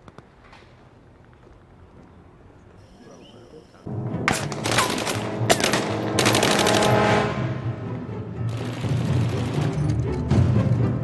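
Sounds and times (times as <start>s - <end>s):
dramatic film music: 3.9s - 11.0s
rifle gunfire: 4.3s - 7.2s.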